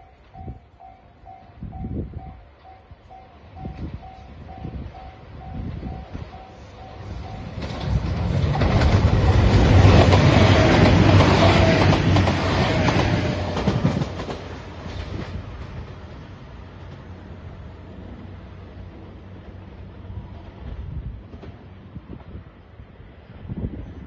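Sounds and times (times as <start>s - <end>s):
level-crossing bell dinging: 0.0s - 7.5s
diesel train passing: 0.0s - 24.0s.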